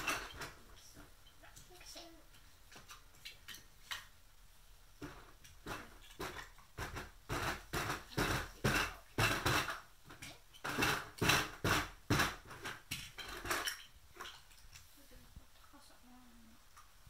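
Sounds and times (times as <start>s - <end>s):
plastic blocks clattering: 5.7s - 14.3s.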